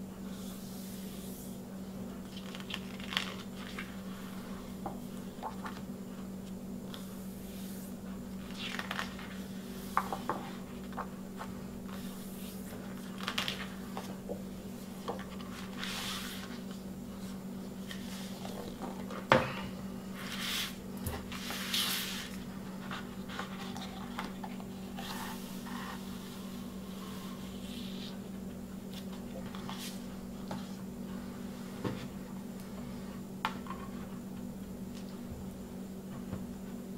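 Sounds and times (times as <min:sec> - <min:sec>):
steady low hum: 0:00.0 - 0:36.9
paper and cardboard rustling: 0:02.2 - 0:04.4, 0:08.4 - 0:14.2, 0:20.2 - 0:26.2.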